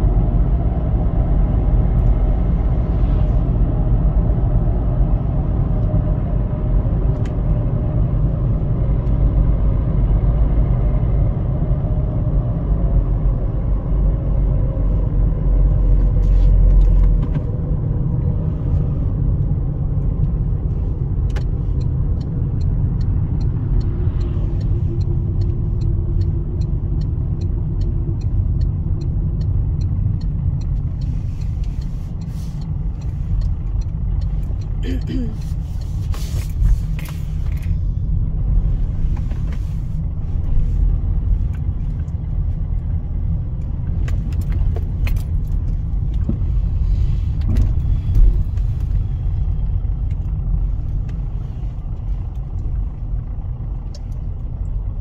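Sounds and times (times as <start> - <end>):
tyre and engine rumble: 0.0 - 55.0
turn indicator ticking: 14.5 - 46.8, 47.4 - 55.0.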